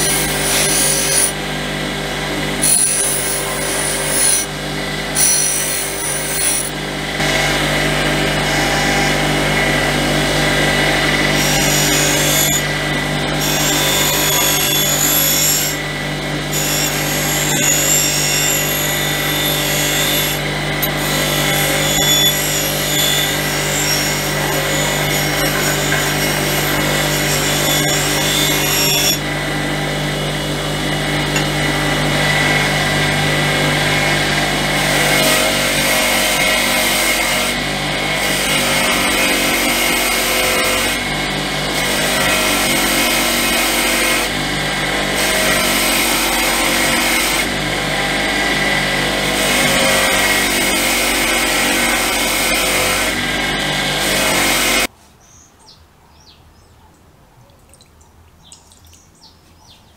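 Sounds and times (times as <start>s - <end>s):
bench grinder motor hum: 0.0s - 54.9s
metal plate scraping on grinding wheel: 2.6s - 4.5s, 5.2s - 7.4s, 19.4s - 29.2s.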